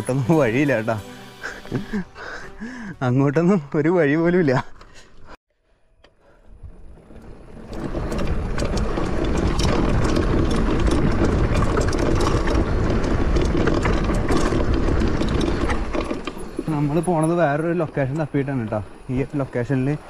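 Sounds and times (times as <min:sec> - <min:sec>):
bike clicking and rattling: 0:05.9 - 0:20.0
bike tyres rumbling on rock: 0:06.5 - 0:20.0.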